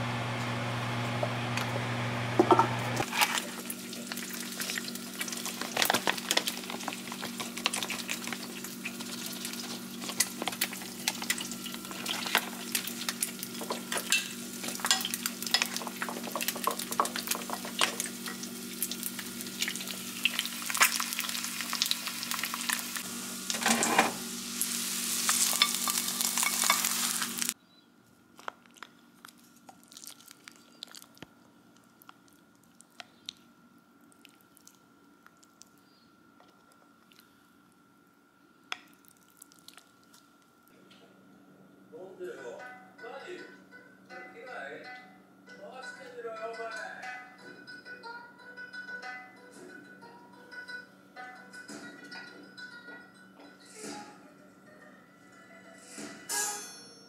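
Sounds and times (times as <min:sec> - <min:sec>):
oil sizzling in a pan: 0:02.3 - 0:27.6.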